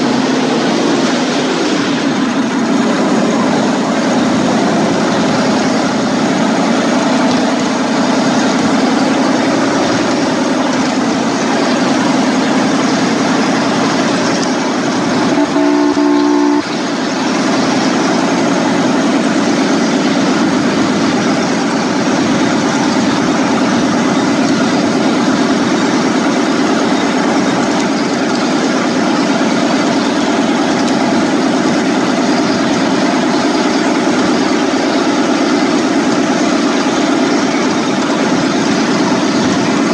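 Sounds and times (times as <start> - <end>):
miniature train rumbling on rails: 0.0 - 39.9
train horn: 15.2 - 17.0.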